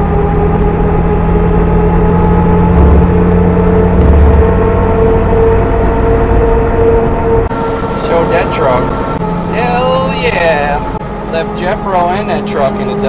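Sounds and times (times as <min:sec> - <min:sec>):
supercharger whine: 0:00.0 - 0:13.0
truck engine accelerating: 0:00.0 - 0:13.0
low thumps: 0:00.4 - 0:08.0.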